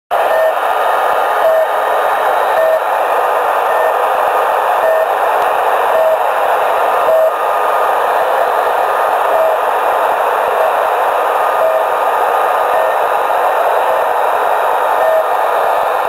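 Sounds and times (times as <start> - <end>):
short radio beeps: 0.2 - 0.6, 2.5 - 3.0, 3.6 - 4.0, 4.8 - 5.2
static hiss: 0.2 - 16.0.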